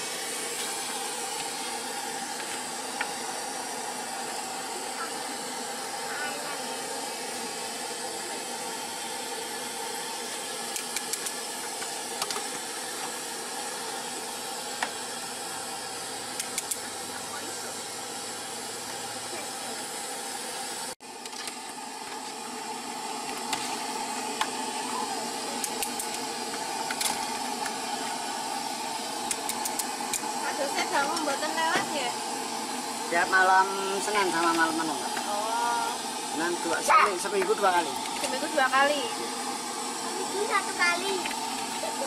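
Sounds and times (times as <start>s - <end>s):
boiling water pot hissing: 0.0s - 42.0s
utensils clicking: 10.7s - 11.4s, 16.4s - 16.8s, 29.3s - 30.2s.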